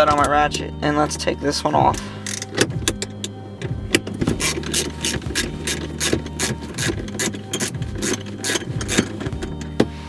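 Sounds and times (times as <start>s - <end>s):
socket ratchet clicking: 2.2s - 9.8s.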